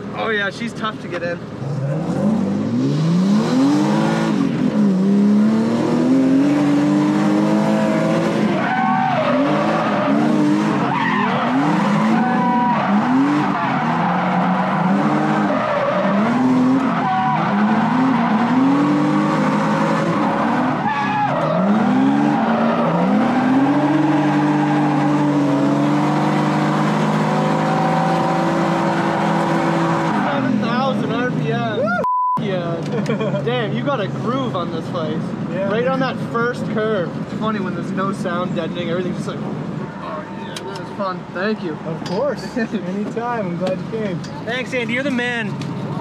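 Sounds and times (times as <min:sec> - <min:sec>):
car engine revving: 0:01.4 - 0:31.6
tires squealing and skidding: 0:01.6 - 0:31.4.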